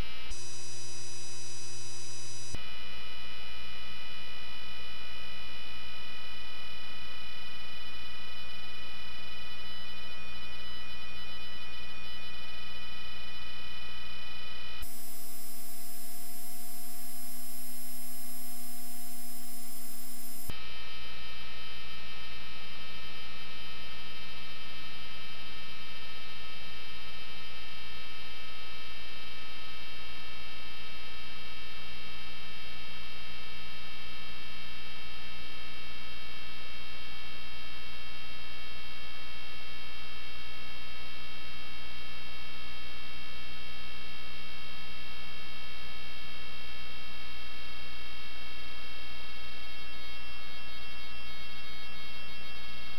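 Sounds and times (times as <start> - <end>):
high steady whining tones: 0.0 - 2.6, 14.8 - 20.5
electrical hum: 0.0 - 2.8, 9.2 - 20.9.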